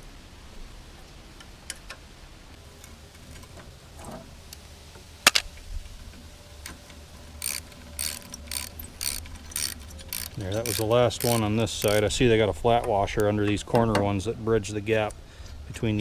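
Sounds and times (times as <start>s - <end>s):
socket ratchet clicking: 7.4s - 12.2s.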